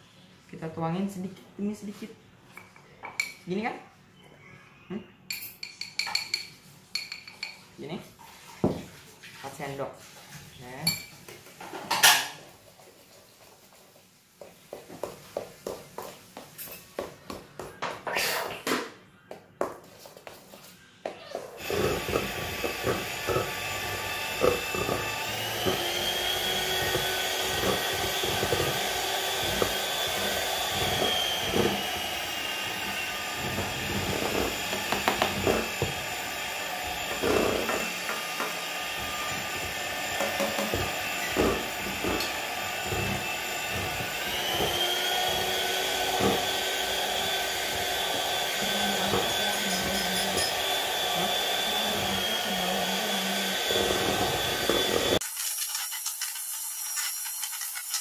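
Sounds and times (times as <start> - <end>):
electric hand mixer whining: 21.6 - 58.0.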